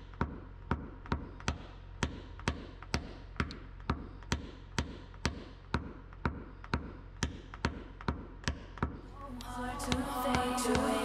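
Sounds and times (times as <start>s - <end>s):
tool tapping car body panel: 0.1s - 9.0s.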